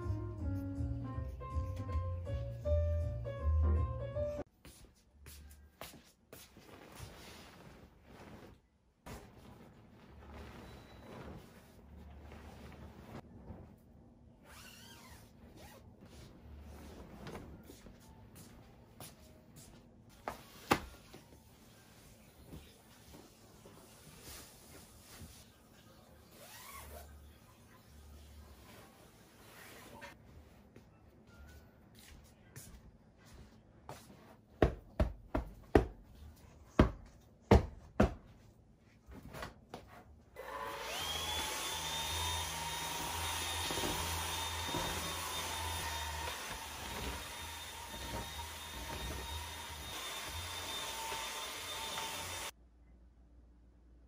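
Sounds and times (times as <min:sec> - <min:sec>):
duvet cover rustling: 0:05.8 - 0:25.6, 0:43.2 - 0:49.9
handheld vacuum cleaner whine: 0:40.4 - 0:52.5.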